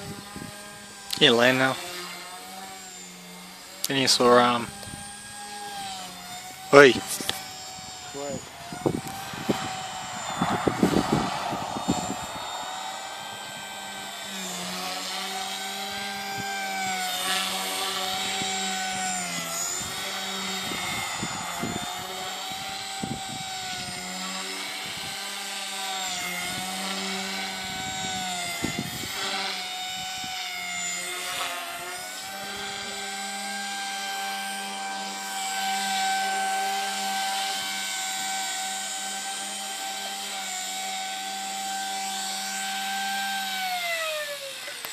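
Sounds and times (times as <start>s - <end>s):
rc helicopter rotor whine: 0.0s - 44.9s.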